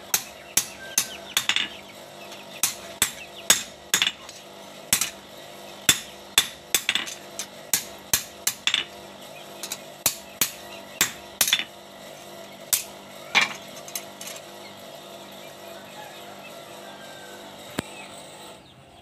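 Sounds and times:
hammer striking metal on anvil: 0:00.0 - 0:01.8, 0:02.6 - 0:05.2, 0:05.9 - 0:08.9, 0:09.6 - 0:11.7, 0:12.7 - 0:13.6.

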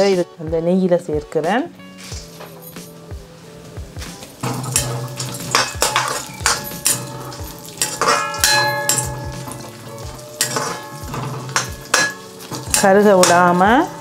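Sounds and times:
ladle scraping and knocking pan: 0:04.1 - 0:14.0
metal ringing: 0:04.3 - 0:14.0.

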